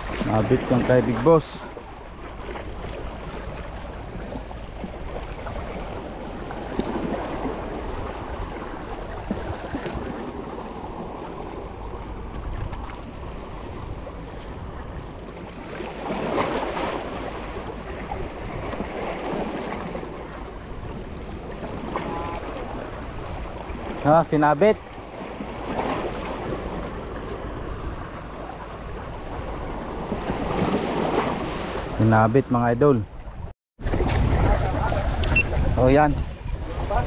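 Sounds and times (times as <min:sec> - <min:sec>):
waves washing on rocky shore: 0:00.0 - 0:01.8.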